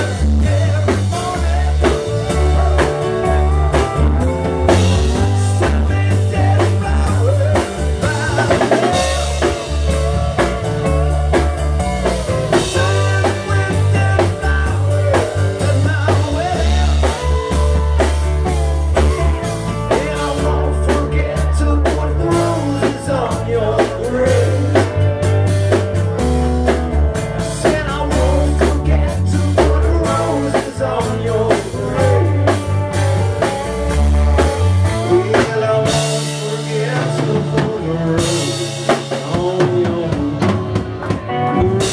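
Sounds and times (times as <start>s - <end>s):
heavy bass line: 0.0s - 41.9s
live rock band playing: 0.0s - 41.9s.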